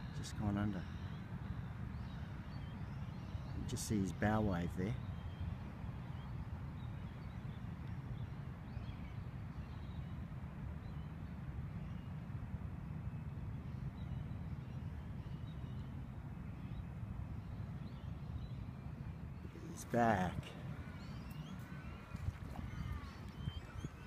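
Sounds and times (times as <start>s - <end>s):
wind rumble on microphone: 4.9s - 24.0s
faint bird calls: 13.7s - 24.0s.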